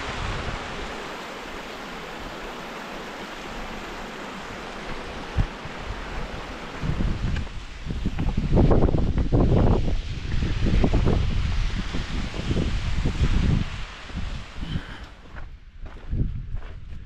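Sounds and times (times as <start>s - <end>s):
water rushing over rocks: 0.0s - 14.6s
wind buffeting microphone: 3.6s - 17.0s.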